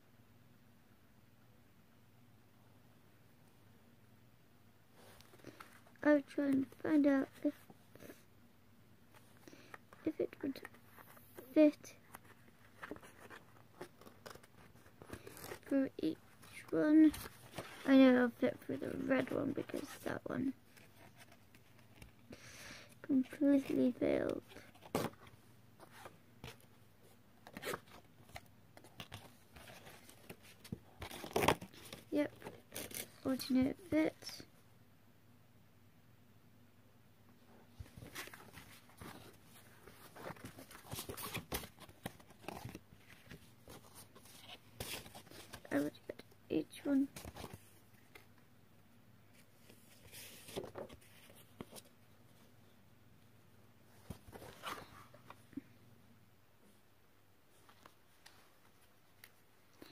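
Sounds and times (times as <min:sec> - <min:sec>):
card and cord rustling: 0:09.1 - 0:22.3, 0:23.0 - 0:34.5, 0:37.8 - 0:46.2, 0:46.8 - 0:48.4, 0:49.3 - 0:52.0, 0:53.9 - 0:55.5.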